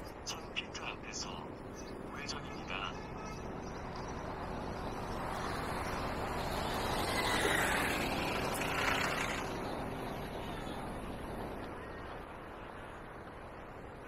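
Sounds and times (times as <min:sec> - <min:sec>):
vehicle passing by: 0:03.2 - 0:11.6.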